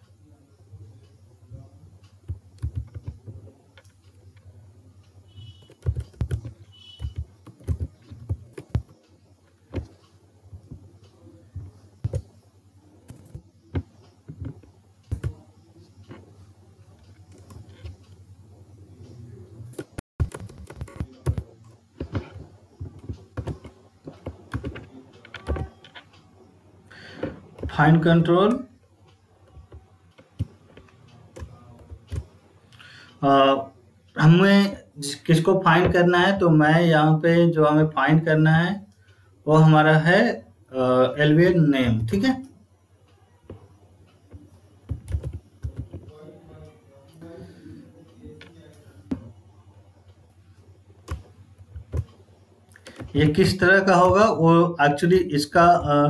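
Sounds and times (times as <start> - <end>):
keyboard typing: 2.1 - 4.5, 5.3 - 18.2, 19.0 - 26.3, 26.9 - 32.9, 43.5 - 46.7, 51.0 - 54.4.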